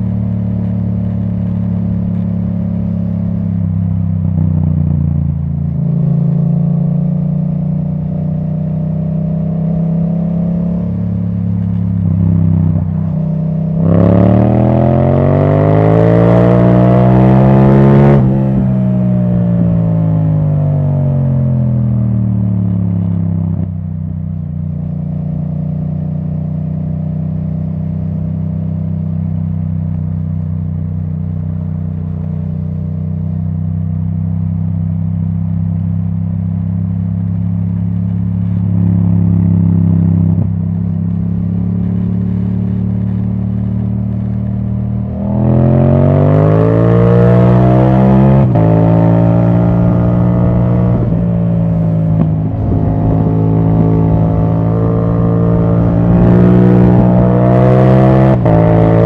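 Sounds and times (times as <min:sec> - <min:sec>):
motorcycle engine: 0:00.0 - 0:59.0.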